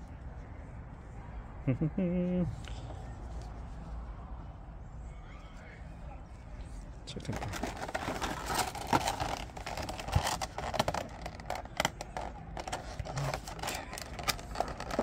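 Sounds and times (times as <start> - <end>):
plastic packaging crinkling: 7.3 - 15.0.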